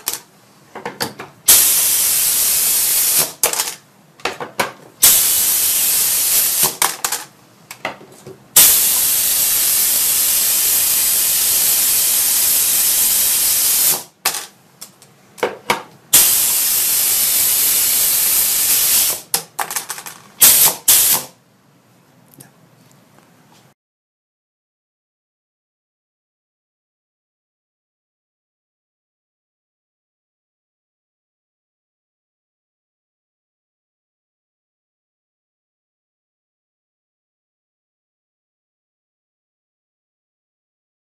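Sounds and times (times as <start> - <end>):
compressed air hissing: 1.5 - 3.4, 5.0 - 6.8, 8.6 - 14.2, 16.1 - 19.3, 20.4 - 21.4.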